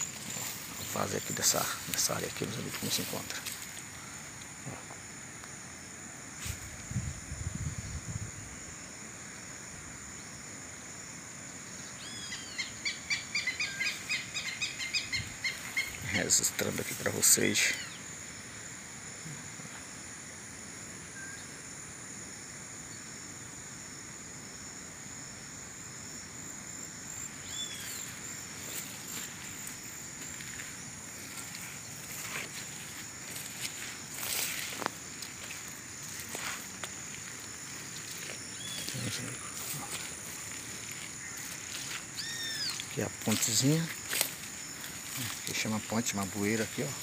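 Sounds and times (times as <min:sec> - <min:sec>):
high-pitched insect chorus: 0:00.0 - 0:47.0
outdoor hiss: 0:00.0 - 0:47.0
bird calling: 0:12.0 - 0:16.1, 0:17.6 - 0:18.0, 0:27.2 - 0:28.3, 0:38.5 - 0:39.9, 0:41.2 - 0:43.0.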